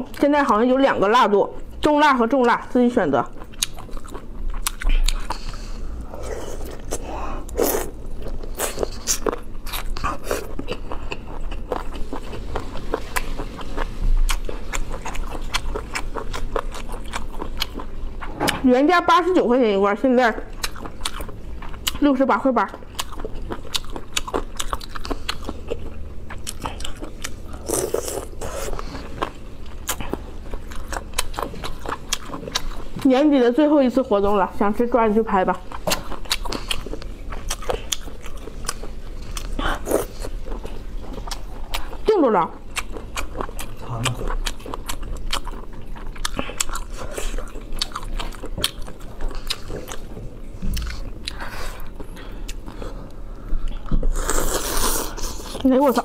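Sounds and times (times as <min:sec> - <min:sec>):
biting and chewing crunches: 0:03.4 - 0:18.6, 0:35.7 - 0:52.8.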